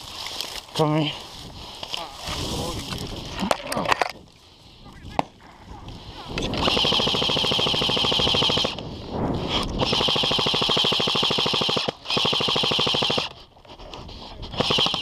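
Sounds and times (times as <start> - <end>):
airsoft rifle automatic fire: 6.6 - 8.8, 9.8 - 13.4, 14.6 - 15.0.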